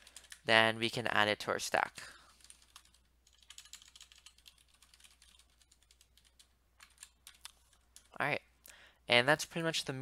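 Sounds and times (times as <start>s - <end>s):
typing on a computer keyboard: 0.0s - 0.5s, 2.4s - 8.2s.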